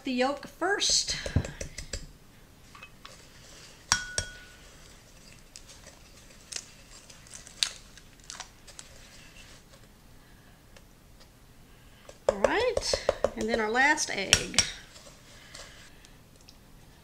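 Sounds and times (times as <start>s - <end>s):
wooden spoon stirring in glass bowl: 2.8s - 7.5s
glass clinking: 3.9s - 4.6s
eggshell cracking: 5.4s - 8.9s.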